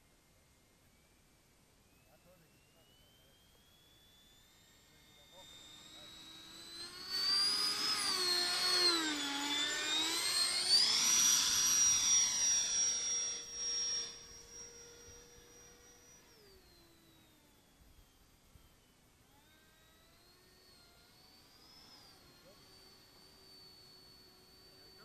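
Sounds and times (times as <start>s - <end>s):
electric ducted fan whine: 0.0s - 25.0s.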